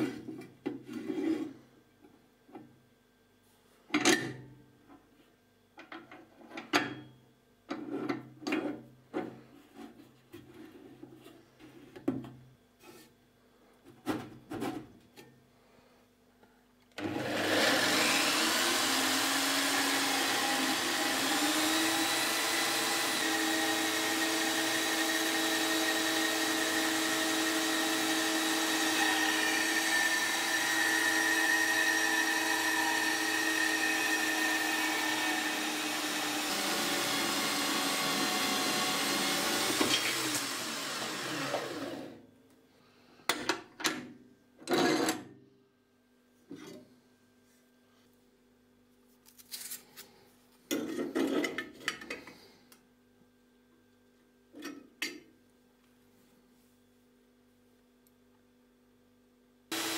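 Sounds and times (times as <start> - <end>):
band saw cutting steel: 17.2 - 42.2.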